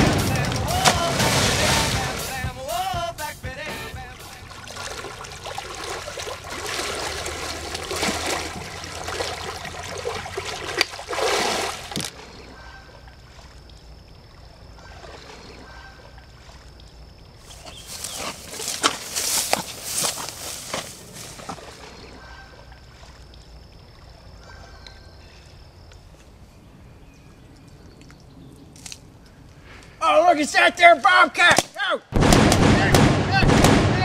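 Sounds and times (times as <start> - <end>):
water splashing from wading: 0.0 - 3.1, 3.7 - 16.8
water trickling: 4.0 - 12.1.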